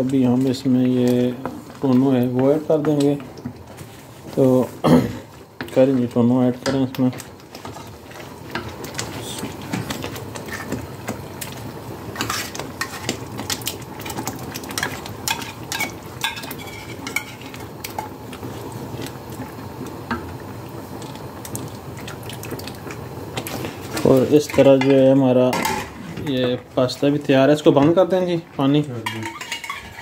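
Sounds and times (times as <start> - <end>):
sauce sizzling in a frying pan: 0.0 - 30.0
spoons scraping a pan: 12.2 - 13.2, 14.8 - 17.5, 29.0 - 30.0.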